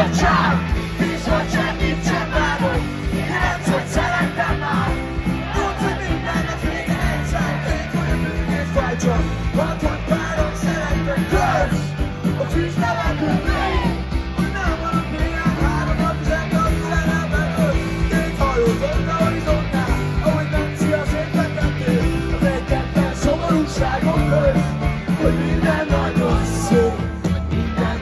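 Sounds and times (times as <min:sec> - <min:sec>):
live rock band playing: 0:00.0 - 0:28.0
man singing: 0:00.0 - 0:28.0.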